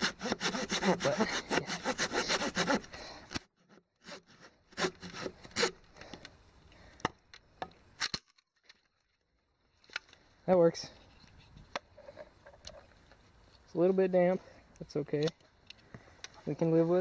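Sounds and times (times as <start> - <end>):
hand saw cutting wood: 0.0 - 5.9.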